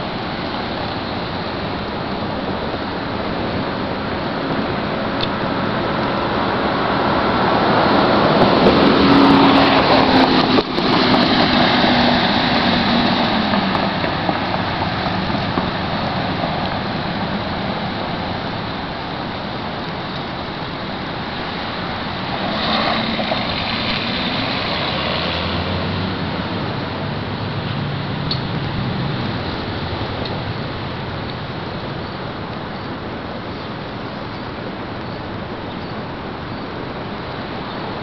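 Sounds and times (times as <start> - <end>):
traffic hiss: 0.0 - 38.0
vehicle passing by: 3.4 - 19.4, 20.7 - 32.4.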